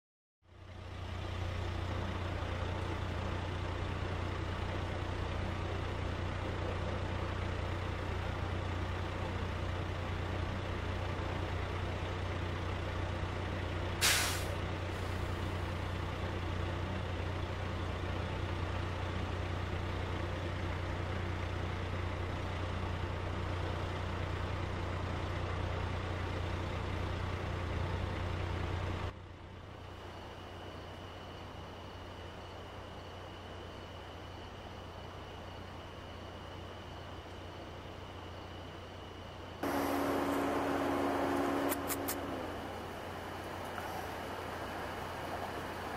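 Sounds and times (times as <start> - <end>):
engine idling: 0.5 - 45.9
air brake hiss: 14.0 - 15.3.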